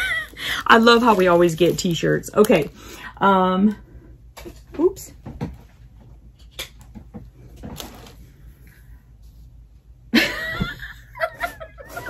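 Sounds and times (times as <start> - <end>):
t-shirt and plastic rustling: 0.0 - 2.5.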